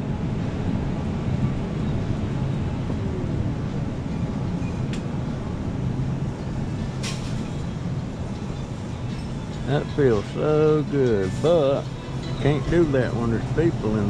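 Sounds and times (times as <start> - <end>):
electric scooter humming: 0.6 - 7.0.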